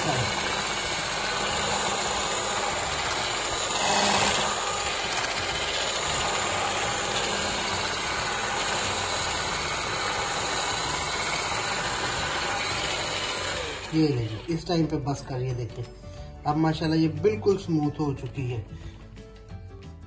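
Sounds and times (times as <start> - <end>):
electric hand mixer whipping: 0.0 - 15.0.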